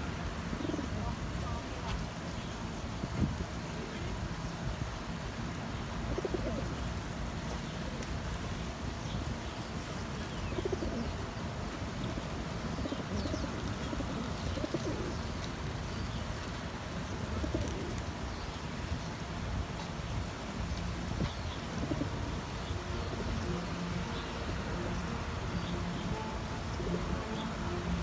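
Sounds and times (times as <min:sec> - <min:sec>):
pigeons cooing: 0:00.5 - 0:01.2, 0:06.0 - 0:06.9, 0:10.2 - 0:18.4, 0:21.0 - 0:28.0.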